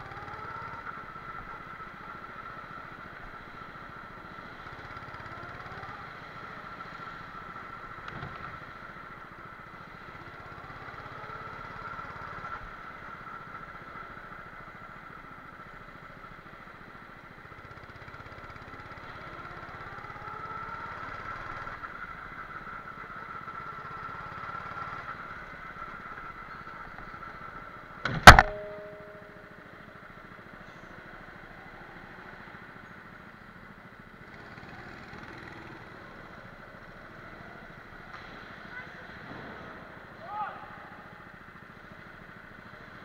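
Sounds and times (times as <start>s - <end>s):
go-kart engine running: 0.0s - 43.0s
loud metallic bang: 28.0s - 29.4s.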